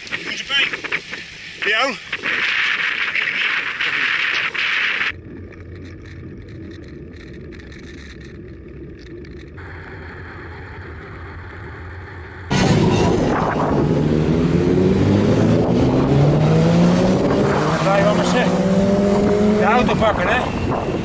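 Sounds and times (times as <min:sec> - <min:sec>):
bicycle tyre noise: 0:00.0 - 0:14.0
rushing wind: 0:00.0 - 0:21.0.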